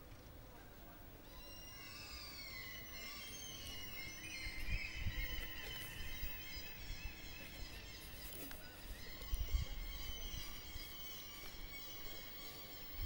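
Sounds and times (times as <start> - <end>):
eerie high-pitched tones: 1.2 - 13.0
wind rumble on microphone: 4.4 - 7.8, 8.9 - 10.8.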